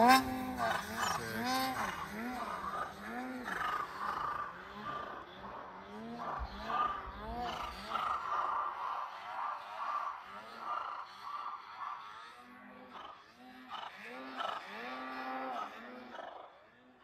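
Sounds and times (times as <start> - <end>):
snowmobile engine revving: 0.0 - 16.1.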